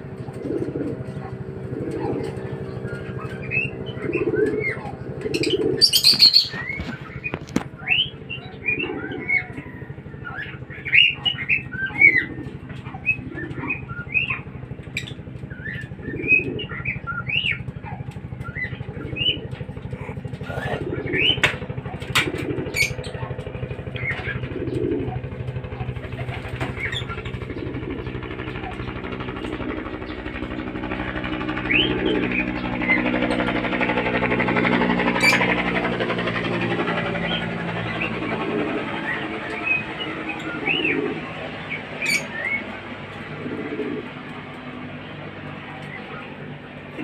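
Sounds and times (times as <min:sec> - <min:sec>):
birds chirping: 0:00.0 - 0:47.0
engine idling: 0:00.0 - 0:47.0
lovebirds chirping: 0:02.2 - 0:12.3.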